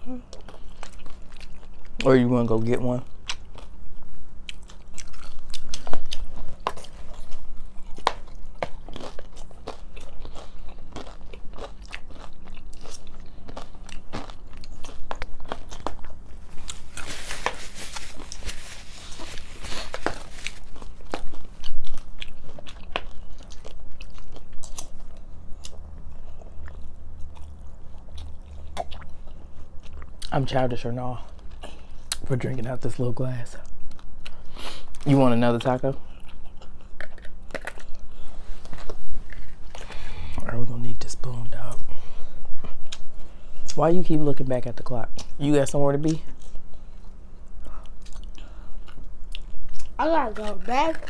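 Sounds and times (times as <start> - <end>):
crunching taco shells: 0.3 - 30.5, 33.5 - 40.2.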